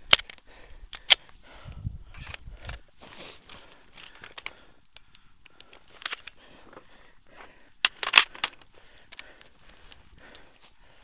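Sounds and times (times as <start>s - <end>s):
camera handling noise: 2.1s - 2.9s, 3.5s - 6.4s, 7.8s - 9.3s.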